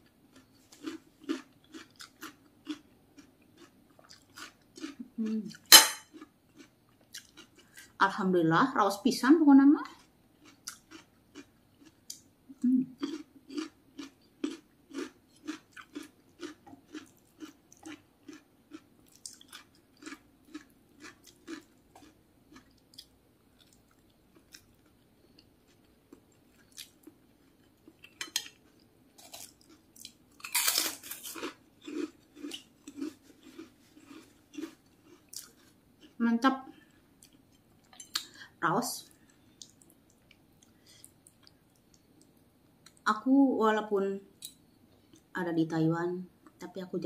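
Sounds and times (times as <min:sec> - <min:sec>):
person chewing crunchy food: 0:00.3 - 0:08.0, 0:10.0 - 0:12.3, 0:13.0 - 0:36.2.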